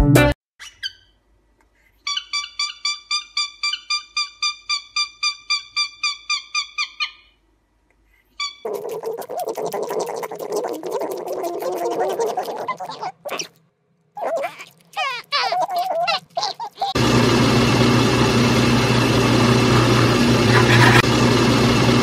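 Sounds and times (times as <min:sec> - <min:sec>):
guinea pigs chewing: 0:08.6 - 0:13.5, 0:14.2 - 0:17.0.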